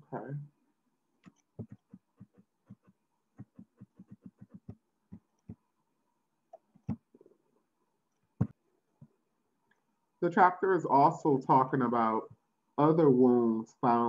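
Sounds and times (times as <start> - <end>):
mouse scroll wheel ticking: 1.2 - 5.6.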